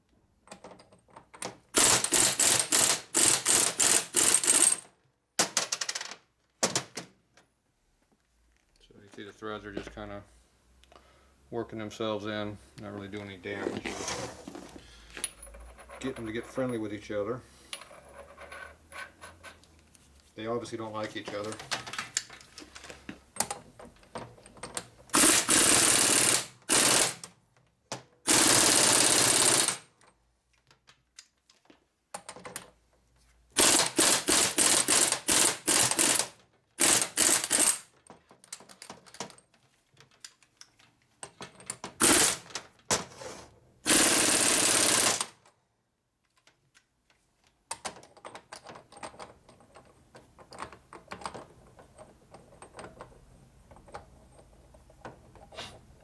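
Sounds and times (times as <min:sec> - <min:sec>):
power tool rattling bursts: 0:01.7 - 0:04.8, 0:25.1 - 0:27.3, 0:28.3 - 0:29.9, 0:33.6 - 0:38.0, 0:42.0 - 0:42.6, 0:43.8 - 0:45.4.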